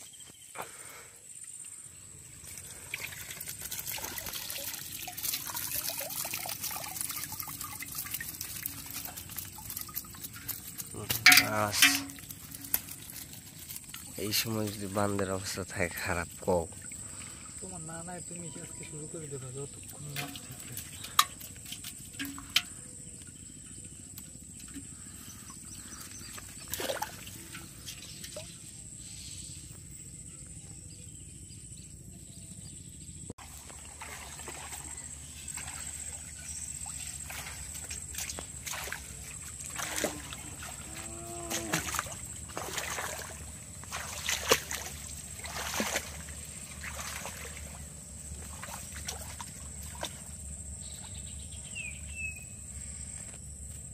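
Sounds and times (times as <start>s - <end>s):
insects droning: 0.0s - 53.9s
splashes of wading: 0.6s - 23.0s, 24.4s - 28.8s, 33.4s - 51.6s
water trickling and dripping: 1.4s - 28.8s, 33.4s - 51.5s
trap knocking against metal pot: 11.1s - 12.8s, 22.1s - 22.8s.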